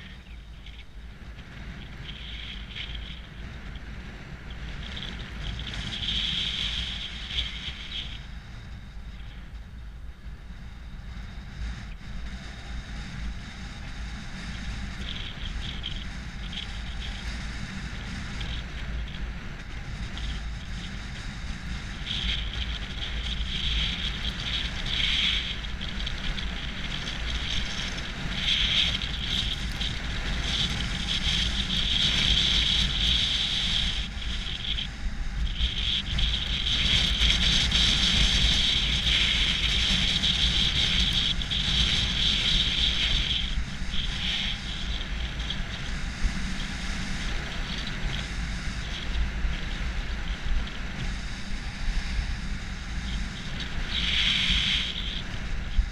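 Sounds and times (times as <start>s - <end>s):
wind buffeting microphone: 0.0s - 55.9s
skis hissing over snow: 35.4s - 55.9s.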